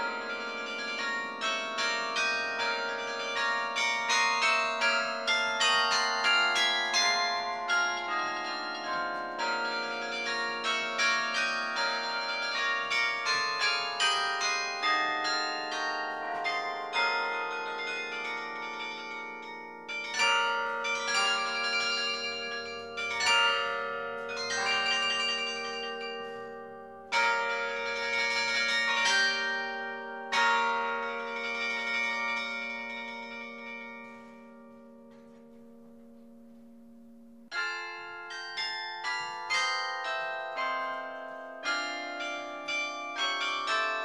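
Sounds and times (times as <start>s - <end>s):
carillon bells ringing: 0.0s - 36.2s, 37.5s - 44.0s.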